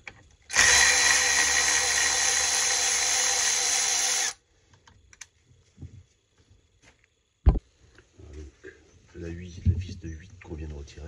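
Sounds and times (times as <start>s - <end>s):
electric ratchet running: 0.5s - 4.4s.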